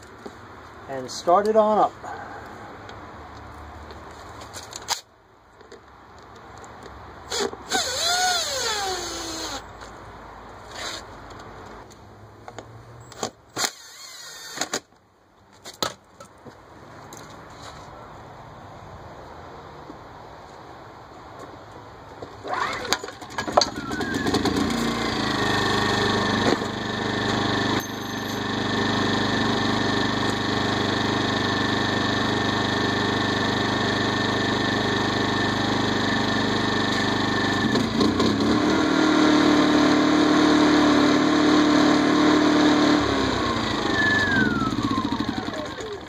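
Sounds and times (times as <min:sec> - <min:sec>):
generator engine running: 0:22.4 - 0:46.0.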